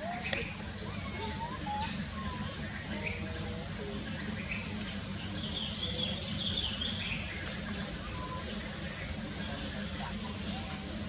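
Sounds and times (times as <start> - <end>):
high warbling chirping calls: 0.0 - 4.7.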